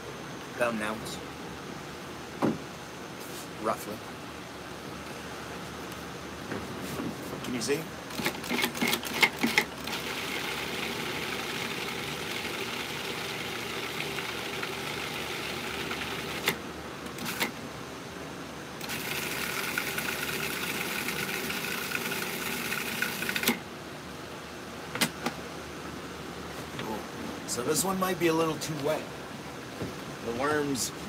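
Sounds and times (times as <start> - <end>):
food processor motor running: 9.8 - 16.5, 18.8 - 23.6.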